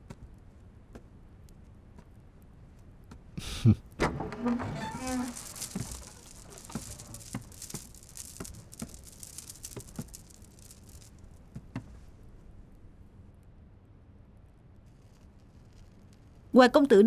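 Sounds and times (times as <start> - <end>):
cloth rustling: 4.3 - 11.1
soft footsteps: 4.4 - 12.1.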